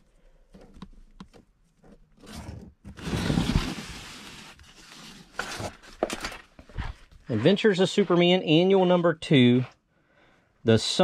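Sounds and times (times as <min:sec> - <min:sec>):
comic book rustling: 0:00.4 - 0:07.6.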